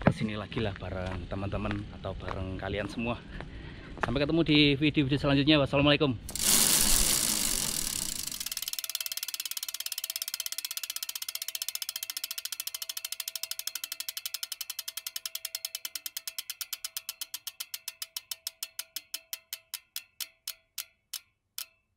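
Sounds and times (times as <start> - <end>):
bicycle freewheel hub ticking: 6.3 - 21.9.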